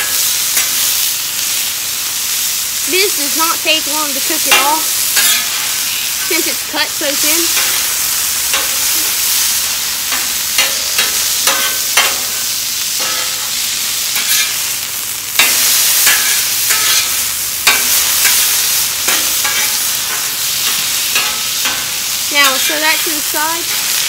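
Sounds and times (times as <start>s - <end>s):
meat sizzling on griddle: 0.0s - 24.0s
metal spatula scraping griddle: 4.4s - 6.5s, 7.1s - 14.7s, 15.4s - 24.0s.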